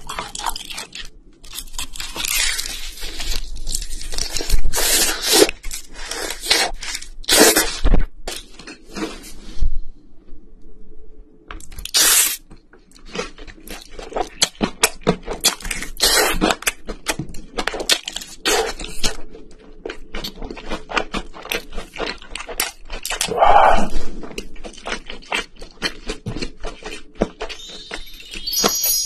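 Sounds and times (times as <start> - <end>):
meat tearing from bone: 0.0 - 7.7
wet chewing: 0.0 - 7.7, 12.8 - 28.8
crunching fried chicken: 0.0 - 9.2, 11.6 - 28.9.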